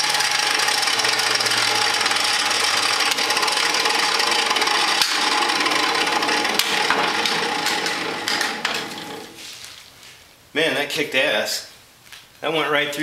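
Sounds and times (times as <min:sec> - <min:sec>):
table saw cutting aluminum: 0:00.0 - 0:09.5.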